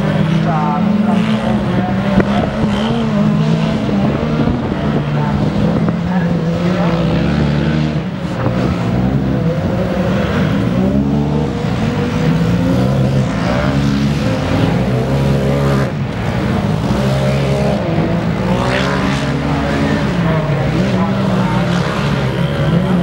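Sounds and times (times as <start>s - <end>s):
race vehicle engines revving: 0.0s - 23.0s.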